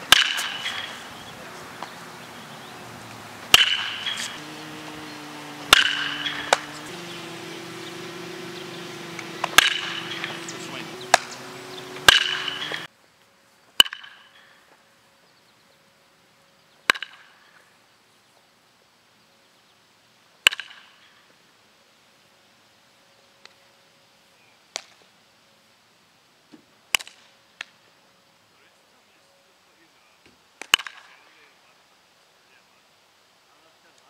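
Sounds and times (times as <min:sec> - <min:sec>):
metal bat hitting balls: 0:00.0 - 0:02.2, 0:02.8 - 0:12.9, 0:13.8 - 0:14.2, 0:16.9 - 0:17.2, 0:20.5 - 0:20.8.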